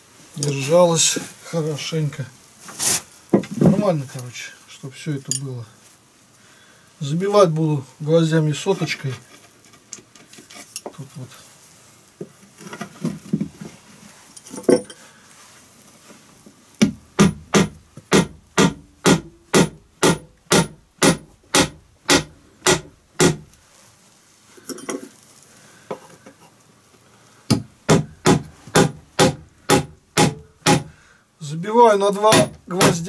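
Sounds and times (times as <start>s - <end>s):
hammer blows on nails: 16.8s - 23.5s, 27.5s - 31.0s, 32.3s - 33.0s.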